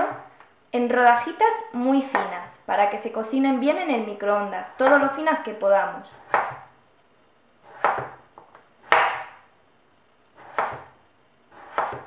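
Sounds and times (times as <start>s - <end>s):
knife slicing potato on board: 6.2s - 6.7s, 7.6s - 8.2s, 8.8s - 9.4s, 10.4s - 10.9s, 11.5s - 12.0s.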